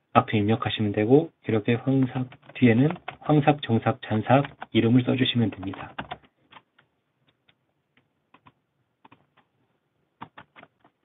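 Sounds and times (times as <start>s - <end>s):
faint keyboard keystrokes: 10.2s - 11.0s.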